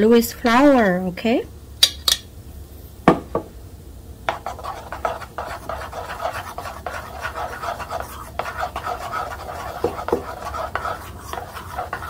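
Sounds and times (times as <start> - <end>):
scraping and tapping in bowl: 4.3 - 12.0
utensil knocking on bowl: 4.3 - 12.0.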